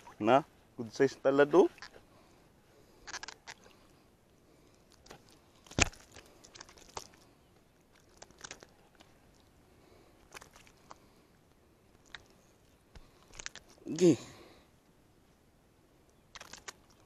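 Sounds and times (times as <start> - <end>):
handling noise on fishing rod: 3.0 - 3.8.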